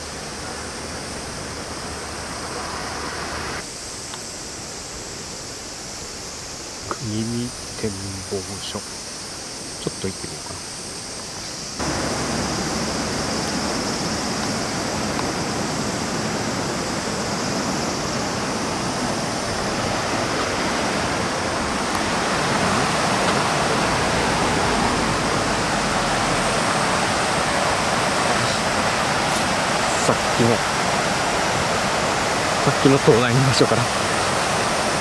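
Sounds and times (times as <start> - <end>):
river rushing over rocks: 10.6 - 35.0.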